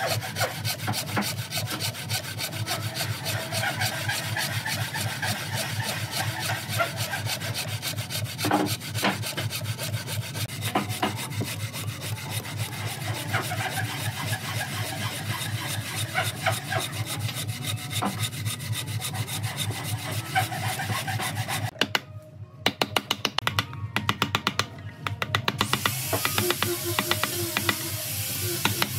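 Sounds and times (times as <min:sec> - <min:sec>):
bow saw cutting log: 0:00.0 - 0:21.8, 0:25.6 - 0:28.9
mallet striking chisel into wood: 0:21.7 - 0:27.8, 0:28.6 - 0:28.9.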